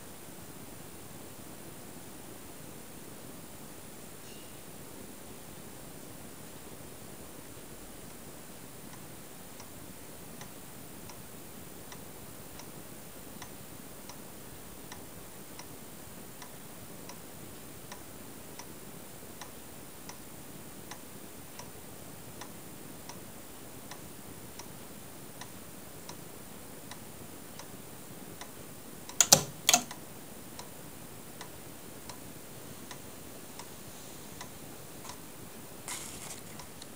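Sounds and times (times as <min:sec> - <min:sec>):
relay clicks: 0:29.1 - 0:30.0.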